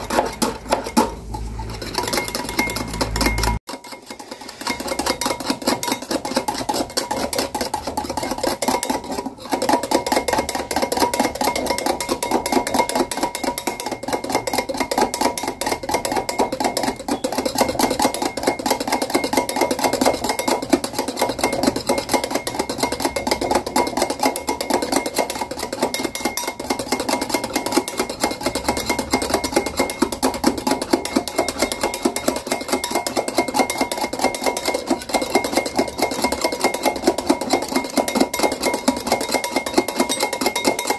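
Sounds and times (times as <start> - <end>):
whisk clicking against glass bowl: 0.0 - 40.9.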